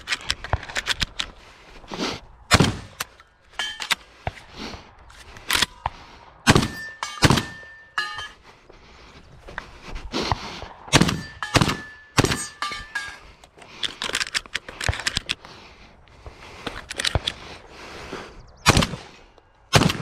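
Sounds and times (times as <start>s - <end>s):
gun handling clicks and clatter: 0.0s - 1.8s, 2.8s - 6.0s, 10.6s - 17.7s
shotgun shots: 2.5s - 3.0s, 6.4s - 7.6s, 10.9s - 12.6s, 18.6s - 19.1s, 19.7s - 20.0s.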